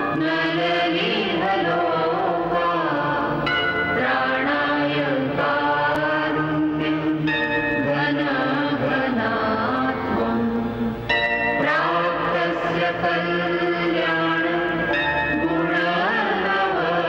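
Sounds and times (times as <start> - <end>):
chanted vocals: 0.0 - 17.0
sustained instrumental backing: 0.0 - 17.0.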